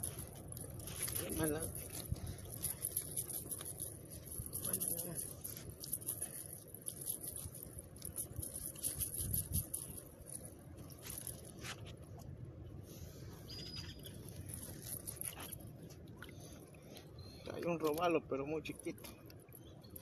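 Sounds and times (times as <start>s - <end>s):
net rustling: 0.0s - 11.8s.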